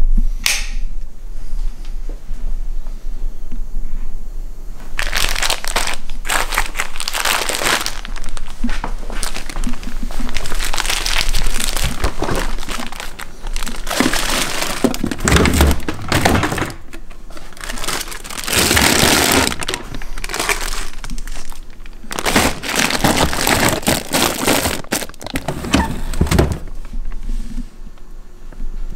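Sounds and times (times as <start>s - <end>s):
plastic bags crinkling: 4.8s - 27.0s
freezer drawer thunks: 13.9s - 16.8s, 22.1s - 26.8s.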